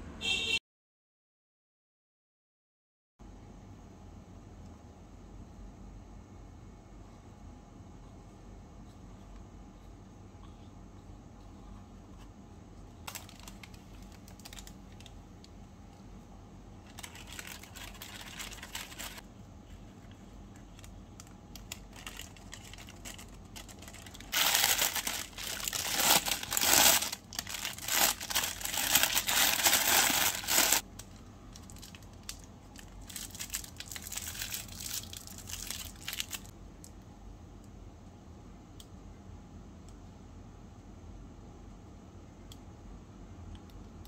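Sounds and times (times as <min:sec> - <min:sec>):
wrapper crinkling: 0:13.0 - 0:15.2, 0:16.8 - 0:36.5.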